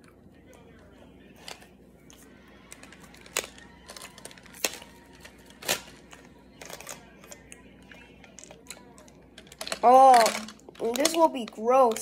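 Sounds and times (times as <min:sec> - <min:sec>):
plastic tube clicking and cracking: 0:02.7 - 0:07.6, 0:08.2 - 0:12.0.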